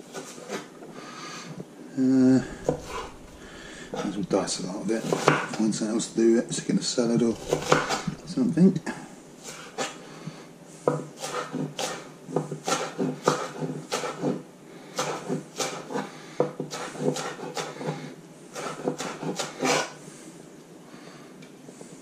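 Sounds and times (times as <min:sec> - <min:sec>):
knife chopping on wooden board: 0:02.6 - 0:04.2, 0:05.0 - 0:05.6, 0:07.3 - 0:08.2, 0:10.9 - 0:14.4, 0:15.0 - 0:17.9, 0:18.6 - 0:19.8.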